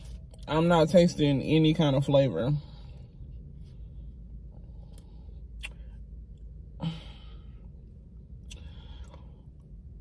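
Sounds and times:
car cabin hum: 0.0 - 10.0
person chewing: 4.9 - 6.4, 8.4 - 9.7
wet mouth clicks: 5.6 - 5.9.

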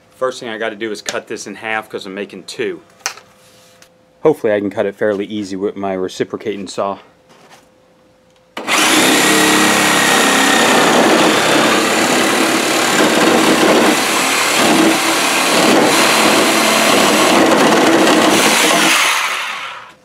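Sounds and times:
reciprocating saw cutting plastic pipe: 8.6 - 20.0.

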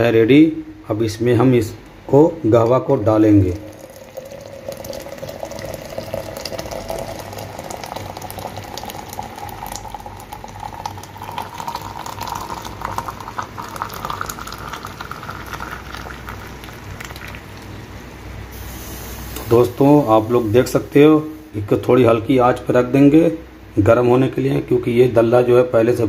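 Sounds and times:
coffee pouring into metal pot: 3.4 - 17.7.

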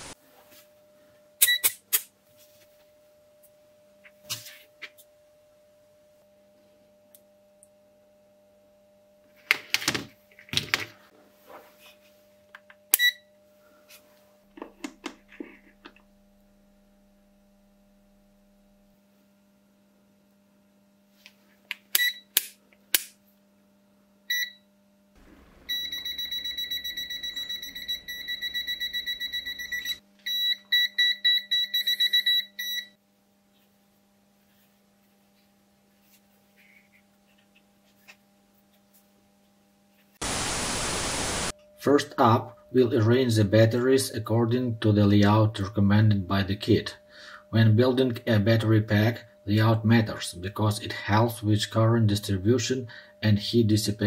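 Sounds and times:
multimeter beeping: 1.4 - 1.8, 12.9 - 13.3, 22.0 - 22.4, 25.7 - 33.0
steady low hum: 22.6 - 30.0.

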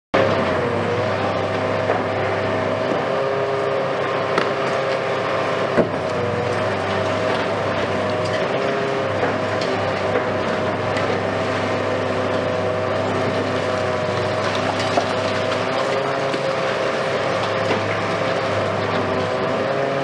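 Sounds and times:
excavator engine and hydraulics whining: 0.2 - 20.0.

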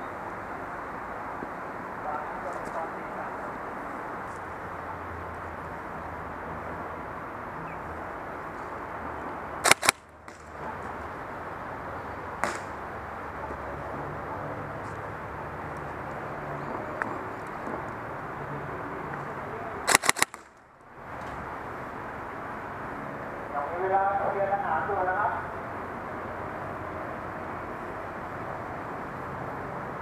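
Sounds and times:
steady background hiss: 0.0 - 30.0
airsoft rifle shots: 9.6 - 10.0, 12.4 - 12.8, 19.9 - 20.5.

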